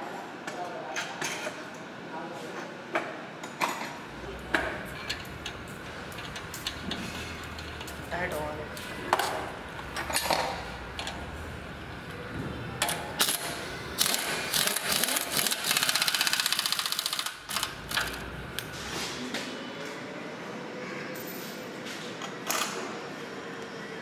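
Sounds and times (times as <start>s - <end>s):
pneumatic impact wrench rattle: 12.8s - 18.3s.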